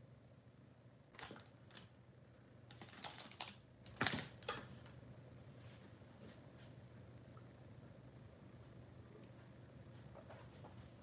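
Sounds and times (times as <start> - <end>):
plastic bag crinkling: 2.7 - 4.4.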